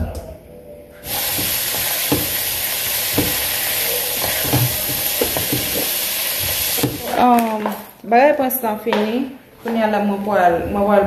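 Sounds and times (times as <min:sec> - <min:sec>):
food sizzling in a pan: 0:01.0 - 0:07.7
utensil knocking and scraping: 0:01.0 - 0:07.8.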